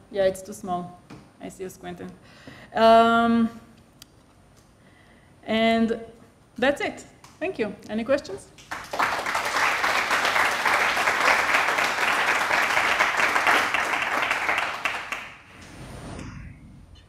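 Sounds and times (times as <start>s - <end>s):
audience applauding: 8.6s - 15.5s.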